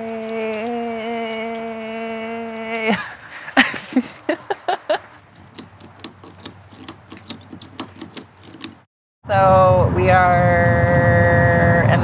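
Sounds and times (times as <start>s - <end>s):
raindrops on wet asphalt: 0.0s - 7.3s.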